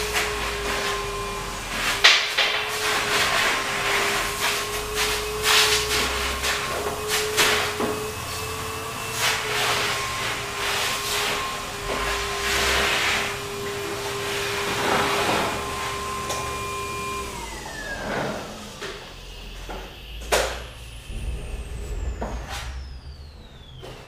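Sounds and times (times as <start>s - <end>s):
vacuum hose whooshing: 0.0s - 18.7s, 20.8s - 24.0s
shop vacuum running: 0.0s - 24.0s
high whine: 18.8s - 24.0s.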